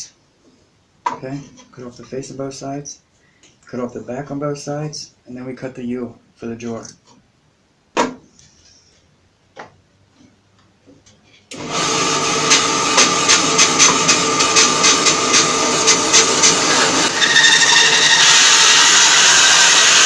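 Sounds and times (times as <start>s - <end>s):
bandsaw cutting log: 11.5s - 20.0s.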